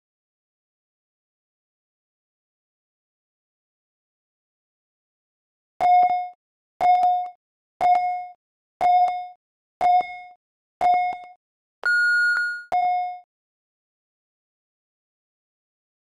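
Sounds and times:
short timer beeps: 0:10.9 - 0:13.2
long high beep: 0:11.8 - 0:12.7.

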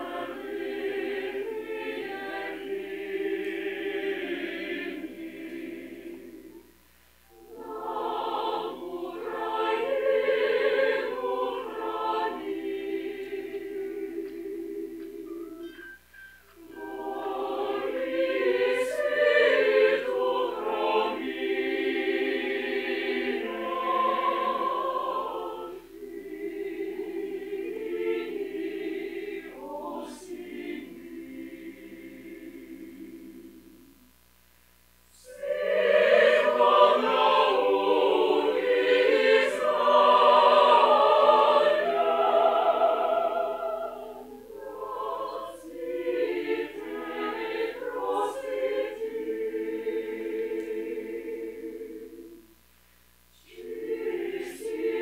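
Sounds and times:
mixed choir singing a hymn: 0:00.0 - 0:06.7, 0:07.3 - 0:15.8, 0:16.6 - 0:34.0, 0:35.1 - 0:52.5, 0:53.3 - 0:55.0.

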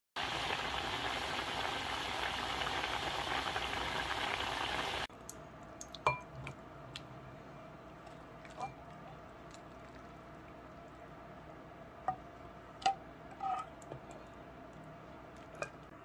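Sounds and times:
soup bubbling at a rolling boil: 0:00.2 - 0:06.6, 0:08.0 - 0:11.2.

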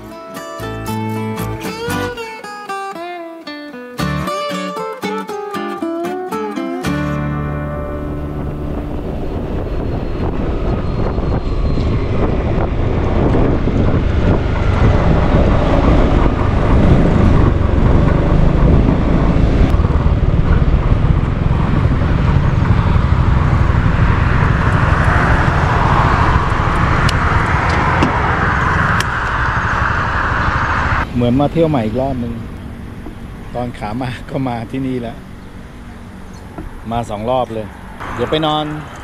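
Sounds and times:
wind rushing over microphone: 0:07.9 - 0:34.8
scooter engine: 0:11.5 - 0:31.1.

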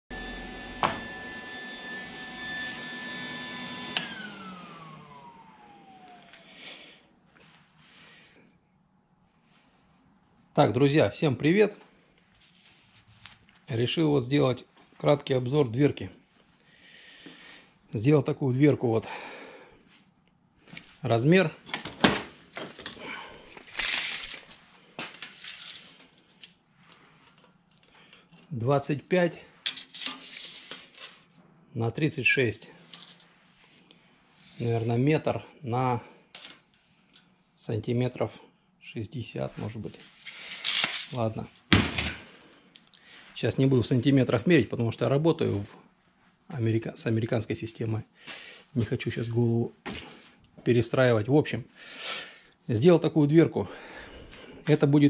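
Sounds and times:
welder cooling fan whine: 0:00.1 - 0:07.0
power switch click: 0:03.9 - 0:04.2
scraping rustle: 0:23.6 - 0:26.2, 0:29.7 - 0:31.3
tape measure pulled out: 0:23.6 - 0:26.5, 0:29.6 - 0:31.3, 0:40.1 - 0:41.4
hand tools moved on workbench: 0:29.6 - 0:31.2.

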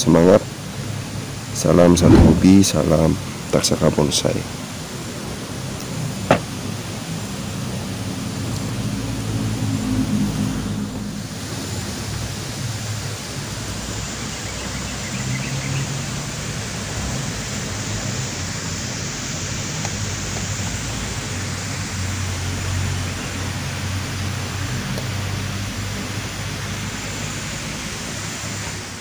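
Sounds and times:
even hiss: 0:00.0 - 0:29.0
low hum: 0:02.0 - 0:02.8.

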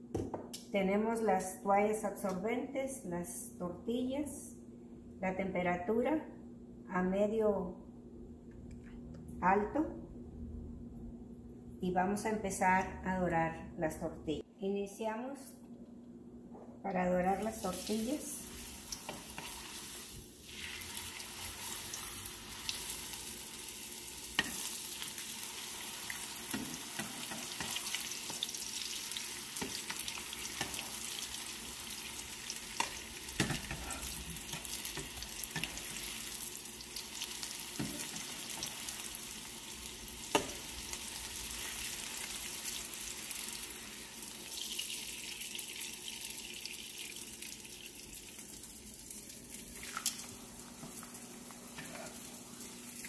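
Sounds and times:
tortillas sizzling in hot oil: 0:17.5 - 0:53.0.

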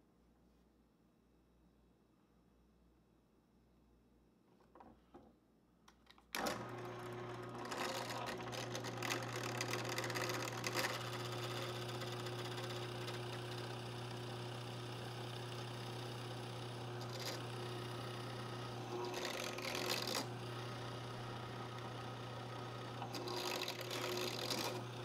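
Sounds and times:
drill press motor humming: 0:06.3 - 0:25.0
drill bit boring into wood: 0:06.4 - 0:25.0.

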